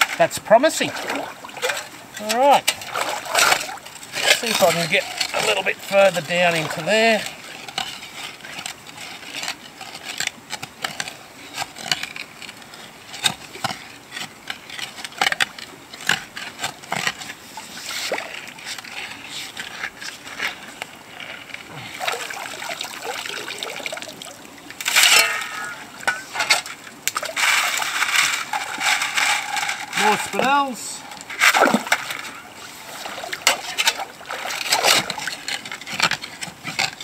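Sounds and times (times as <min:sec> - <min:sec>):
water sloshing: 0:00.0 - 0:11.0, 0:13.7 - 0:37.0
shovel digging into gravel: 0:24.8 - 0:26.6
wet gravel rattling onto sieve: 0:24.8 - 0:32.3.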